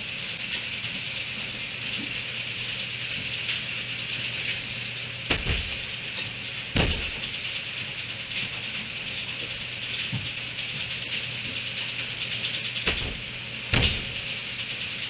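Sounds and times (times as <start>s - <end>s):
steady high hiss: 1.6s - 9.7s
sharp knocks on metal feeder: 5.3s - 5.9s, 6.8s - 7.4s, 12.9s - 14.2s
low hum: 6.8s - 7.8s.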